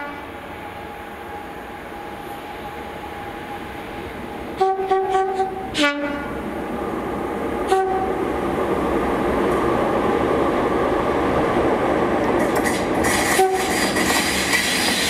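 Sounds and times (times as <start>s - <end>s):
two-tone train horn: 0.0s - 0.4s, 4.6s - 6.4s, 7.6s - 8.2s, 13.2s - 13.8s
diesel locomotive engine: 0.0s - 15.0s
train wheel noise: 0.0s - 15.0s.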